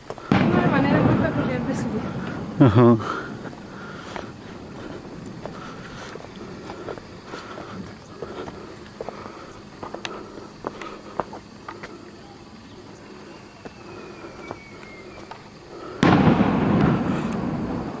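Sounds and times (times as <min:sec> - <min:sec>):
footsteps on stone steps: 0:03.4 - 0:12.0.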